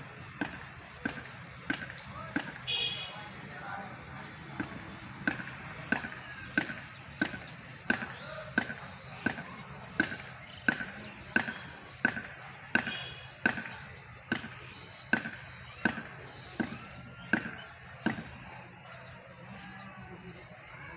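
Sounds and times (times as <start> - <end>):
rhythmic knocking blows: 0.0 - 19.3.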